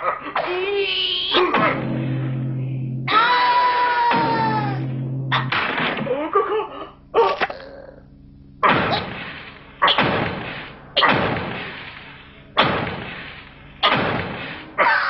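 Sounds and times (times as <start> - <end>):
cartoon club heavy thuds: 1.4 - 6.3, 8.6 - 14.8.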